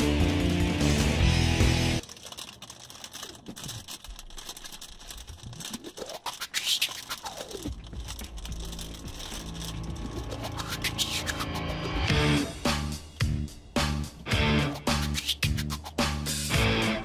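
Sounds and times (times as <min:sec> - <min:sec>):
background music: 0:00.0 - 0:02.0, 0:07.7 - 0:17.0
crackling scratchy clicks: 0:00.0 - 0:12.1, 0:14.7 - 0:16.8
sliding tones: 0:02.0 - 0:12.1.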